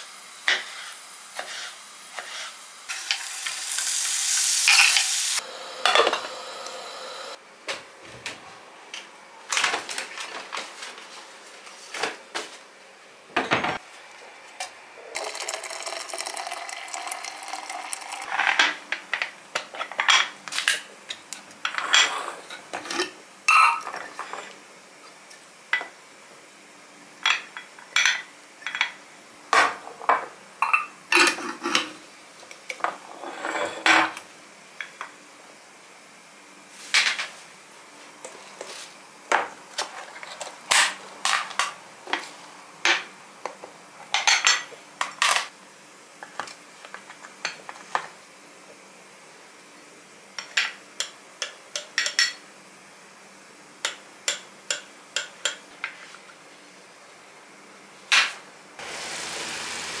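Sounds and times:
dishes and cutlery clinking: 21.7s - 24.5s.

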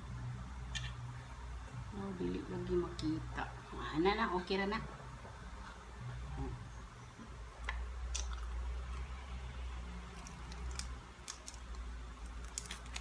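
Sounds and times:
person chewing: 8.1s - 9.1s, 10.1s - 13.0s
dried fish tearing crackles: 10.1s - 13.0s.

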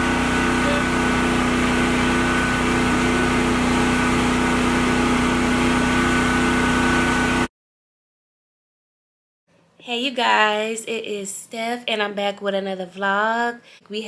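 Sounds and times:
engine idling: 0.0s - 5.5s.

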